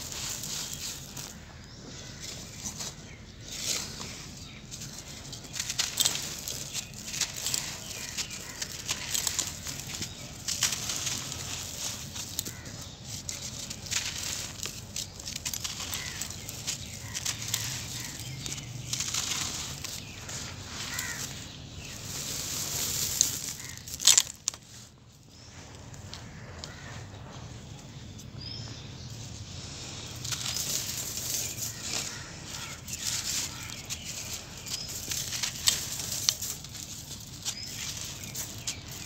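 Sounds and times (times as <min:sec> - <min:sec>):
grit pattering onto floor and grate: 0:04.8 - 0:24.6, 0:30.2 - 0:39.0
cement lumps crushed by hand: 0:05.3 - 0:22.0.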